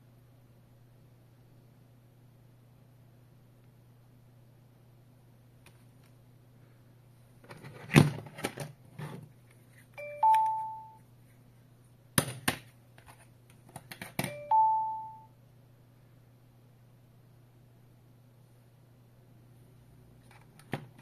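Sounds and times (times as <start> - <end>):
two-note electronic door chime: 10.0 - 11.0, 14.3 - 15.3.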